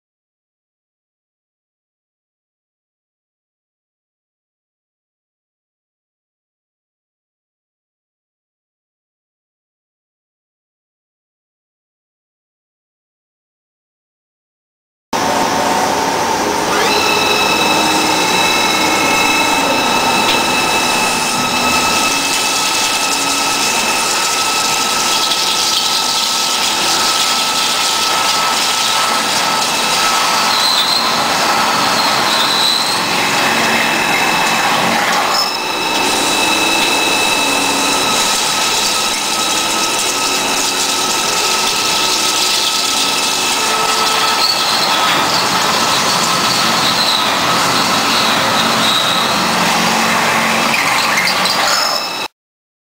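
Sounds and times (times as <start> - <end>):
metal cutting noise: 15.2 - 52.3
drill spindle high-pitched whine: 15.2 - 52.4.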